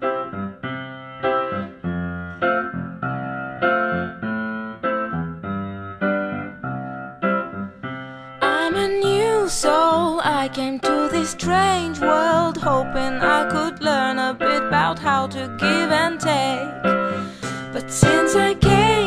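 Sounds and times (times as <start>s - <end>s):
piano chords: 0.0s - 19.0s
person singing: 8.4s - 19.0s
backing music: 17.1s - 19.0s.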